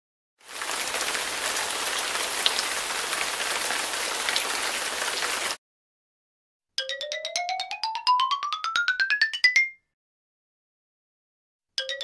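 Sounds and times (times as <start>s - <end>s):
rain pattering on leaves: 0.4s - 5.6s
single raindrops: 0.4s - 5.6s.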